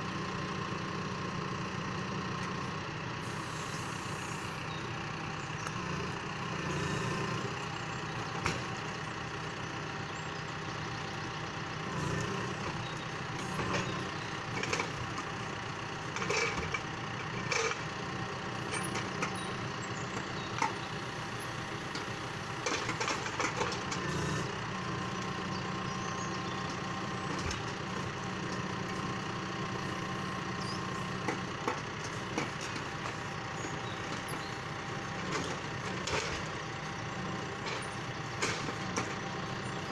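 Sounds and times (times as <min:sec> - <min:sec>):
tractor engine running: 0:00.0 - 0:39.9
knocks of logs being loaded: 0:07.4 - 0:09.4, 0:11.6 - 0:25.4, 0:26.5 - 0:39.9.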